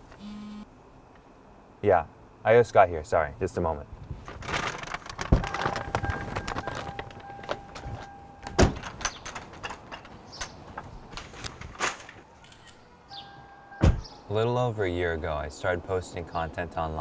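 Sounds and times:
steady electronic tone: 0:00.2 - 0:00.7
clicks rattles and knocks: 0:04.3 - 0:07.9, 0:08.5 - 0:12.2.

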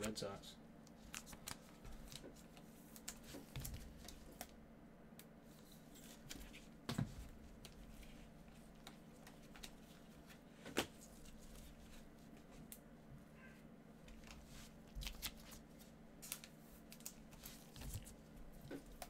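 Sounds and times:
cards rustling and sliding: 0:01.0 - 0:04.5, 0:05.5 - 0:06.7.

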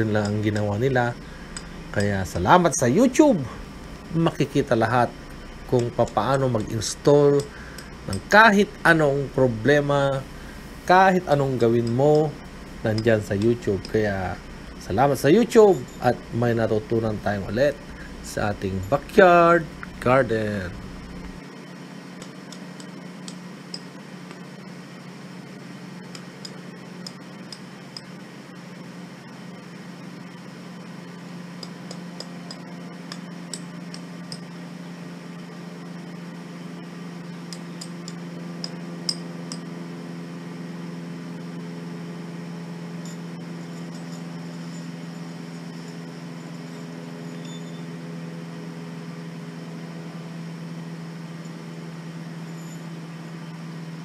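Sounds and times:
low machine hum: 0:00.0 - 0:54.0.

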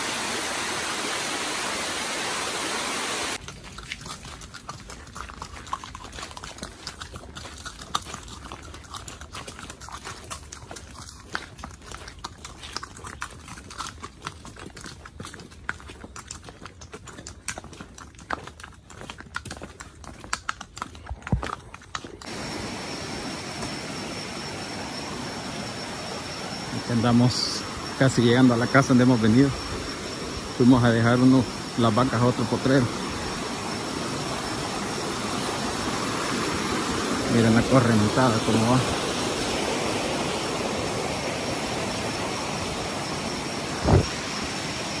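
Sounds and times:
river rushing: 0:00.0 - 0:03.4, 0:22.3 - 0:30.7, 0:31.4 - 0:45.0
horse hooves on cobblestones: 0:14.2 - 0:22.3
thin high tone: 0:22.3 - 0:35.4
low thump: 0:43.8 - 0:44.1.

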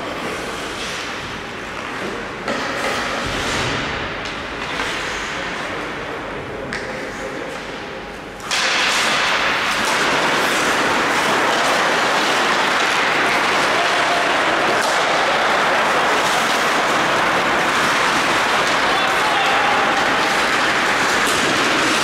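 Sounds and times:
hockey sticks clacking: 0:00.0 - 0:03.3, 0:08.4 - 0:22.0
skates cutting ice: 0:08.5 - 0:22.0.

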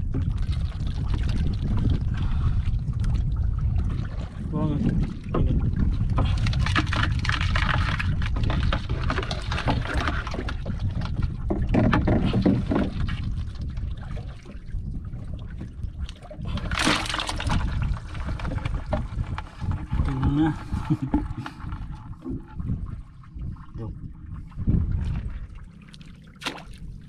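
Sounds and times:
wind buffeting microphone: 0:00.0 - 0:27.0
splash into bucket of water: 0:16.5 - 0:17.8, 0:26.3 - 0:26.8.

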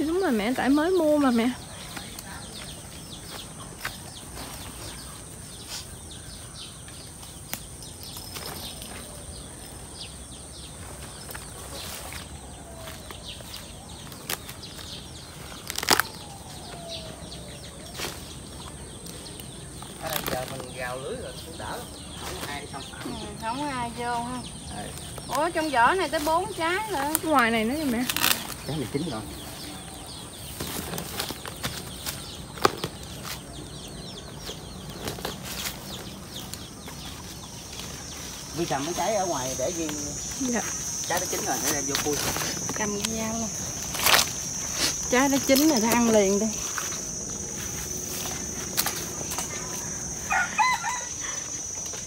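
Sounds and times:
birds chirping: 0:00.0 - 0:52.0
falling bird calls: 0:00.0 - 0:52.0
steady high-pitched hum: 0:36.6 - 0:52.0.

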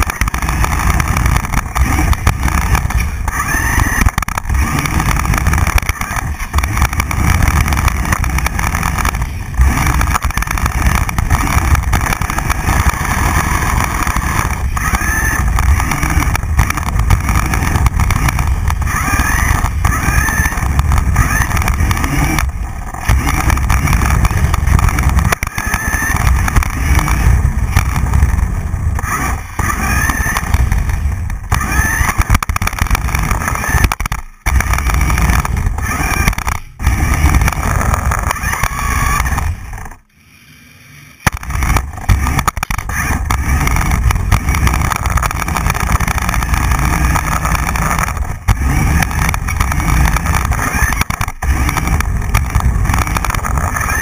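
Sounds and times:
toy car motor whining: 0:00.0 - 0:54.0.

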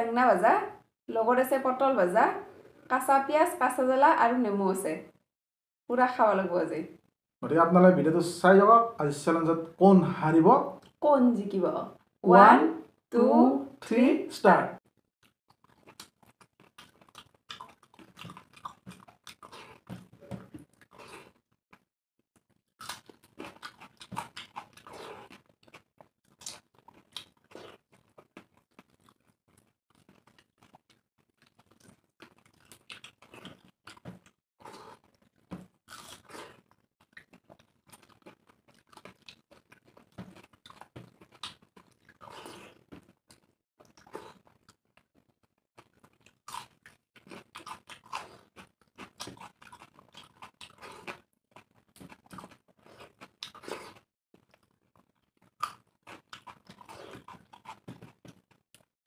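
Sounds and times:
chewing and lip-smacking: 0:15.2 - 0:21.8, 0:22.8 - 0:58.9.

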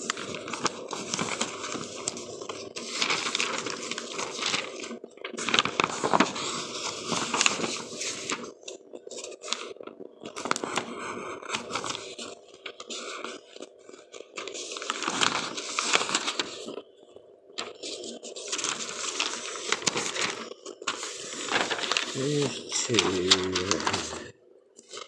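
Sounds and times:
radio static crackling: 0:21.3 - 0:24.3.

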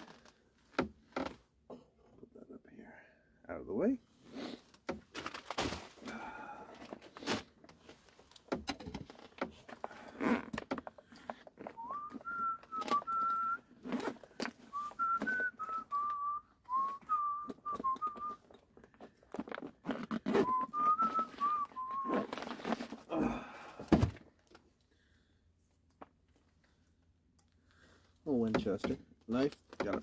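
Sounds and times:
handling clicks and knocks: 0:07.6 - 0:09.9, 0:10.5 - 0:14.6, 0:28.4 - 0:30.0
man whistling a tune: 0:11.8 - 0:13.7, 0:14.7 - 0:18.4, 0:20.3 - 0:22.3.

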